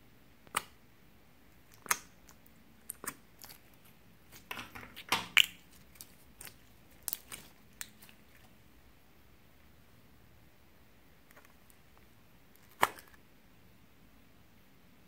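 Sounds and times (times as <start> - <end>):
slime squelching and clicking: 0.4 - 0.8, 1.6 - 8.5.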